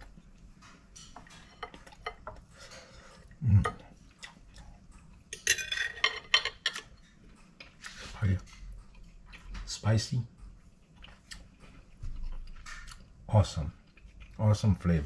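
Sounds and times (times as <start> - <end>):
cutlery scraping on a plate: 0.6 - 3.8, 5.3 - 8.6.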